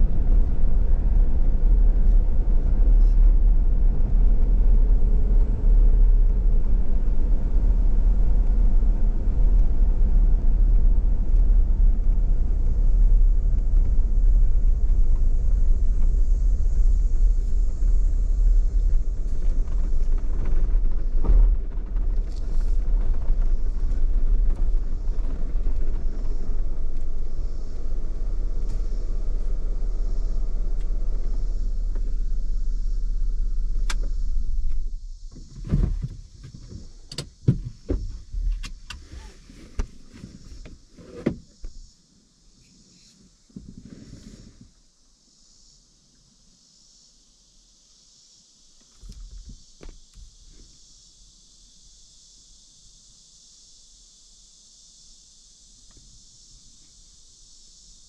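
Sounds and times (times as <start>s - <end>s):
road and engine rumble: 0.0s - 47.0s, 47.8s - 58.0s
thump: 34.7s - 41.8s, 49.0s - 50.3s.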